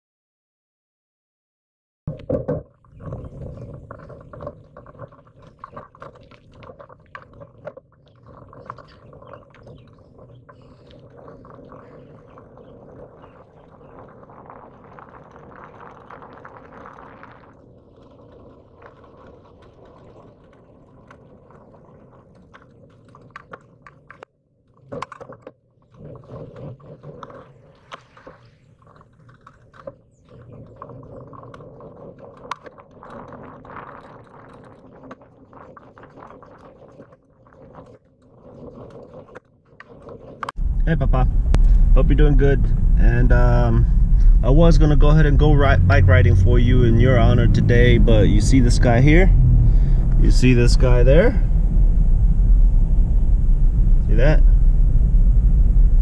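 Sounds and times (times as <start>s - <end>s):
wind: 2.1s - 56.0s
tyres rumbling on pavement: 40.6s - 56.0s.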